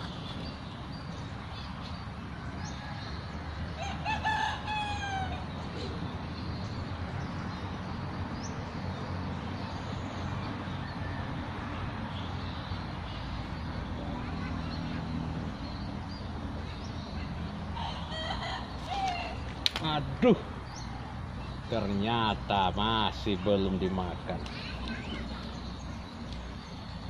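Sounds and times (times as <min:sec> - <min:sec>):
rooster crowing: 0:02.6 - 0:05.4, 0:17.8 - 0:19.4.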